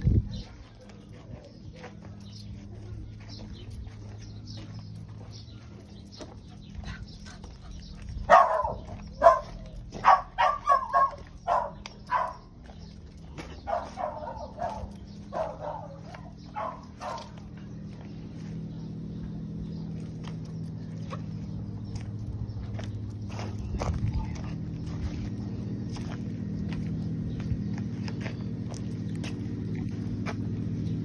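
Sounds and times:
low hum: 0.0s - 31.0s
dog barking: 8.2s - 12.5s, 13.6s - 17.4s.

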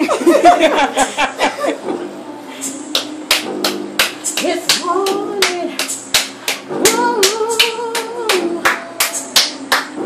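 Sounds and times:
hand claps: 2.7s - 10.0s
woman singing a ballad: 4.2s - 6.0s, 6.7s - 10.0s.

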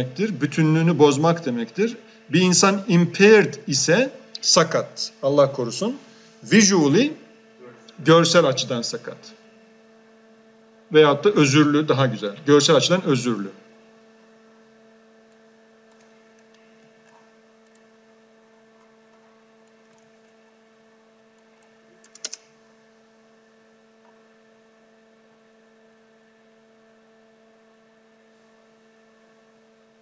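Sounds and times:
faint electrical hum: 0.0s - 30.0s
computer keyboard clicks: 15.3s - 17.9s, 19.6s - 20.4s, 21.4s - 22.5s.

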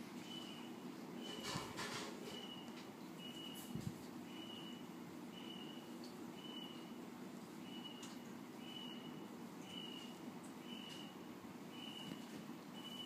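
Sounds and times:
low background hum: 0.0s - 13.0s
faint high-pitched beeps: 2.3s - 6.9s, 7.6s - 13.0s.

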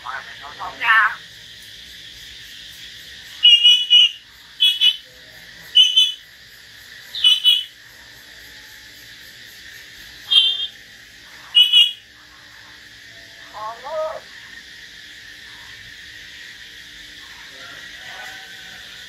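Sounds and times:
steady high hiss: 0.0s - 19.0s
songbird whistling: 5.8s - 6.2s, 10.3s - 10.8s.

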